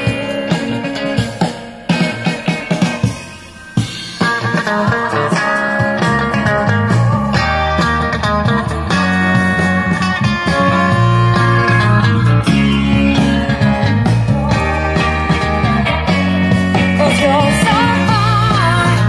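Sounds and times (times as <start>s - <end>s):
bass guitar: 0.0s - 19.0s
drums: 0.0s - 19.0s
electric guitar: 0.0s - 19.0s.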